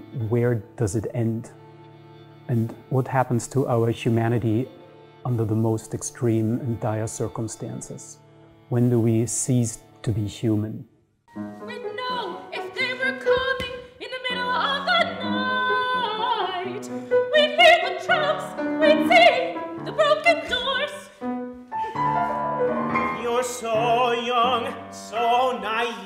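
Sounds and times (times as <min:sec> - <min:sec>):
piano accompaniment: 0:00.0 - 0:10.4, 0:11.3 - 0:26.0
opera singers singing: 0:11.7 - 0:21.2, 0:22.9 - 0:26.0.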